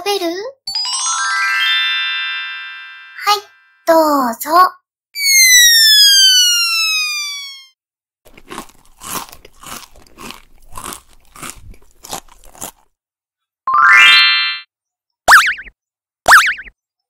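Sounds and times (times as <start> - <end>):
cartoon crunchy chewing: 8.3 - 13.0
rising tone: 13.7 - 14.6.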